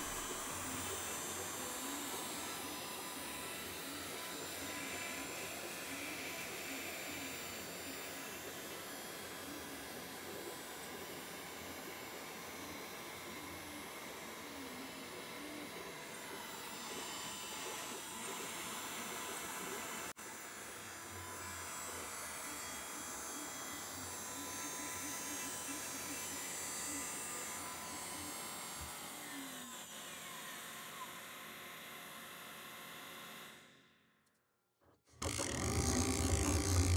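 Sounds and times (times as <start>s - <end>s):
router spindle whining: 0.0s - 8.4s, 35.2s - 36.9s.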